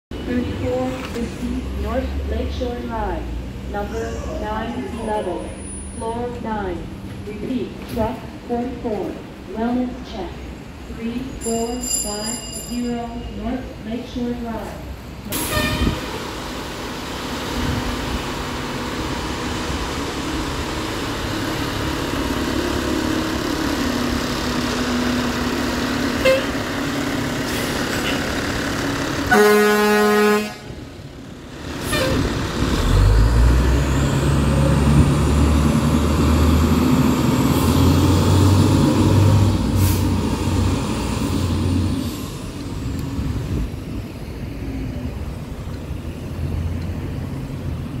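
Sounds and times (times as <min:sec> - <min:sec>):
air horn blast: 0:15.3 - 0:16.1, 0:26.2 - 0:26.6, 0:29.3 - 0:30.8, 0:31.8 - 0:32.3
diesel truck engine running: 0:16.0 - 0:48.0.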